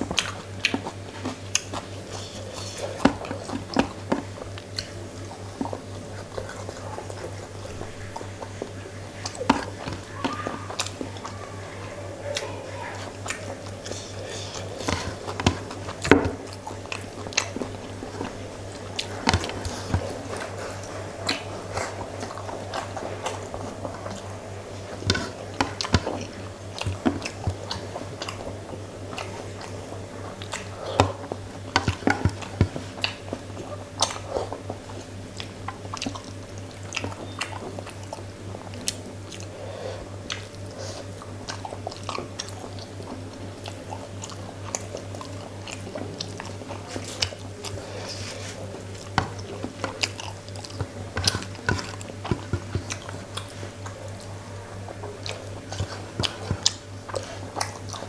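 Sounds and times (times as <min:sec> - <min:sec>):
wet mouth smacks and chewing: 0:00.0 - 0:10.0, 0:29.1 - 0:39.5
steady low hum: 0:00.0 - 0:58.0.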